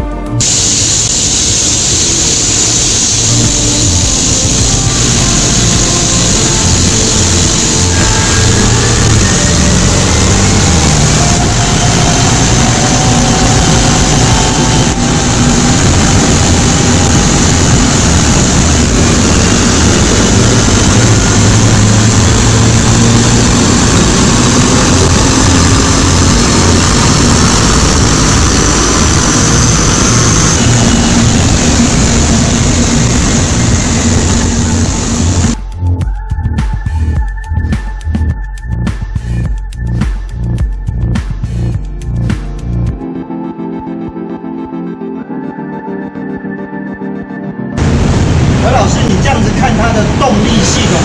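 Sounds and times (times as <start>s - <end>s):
car engine running under load: 0.4s - 35.6s, 47.8s - 51.0s
dyno rollers turning: 0.4s - 35.6s.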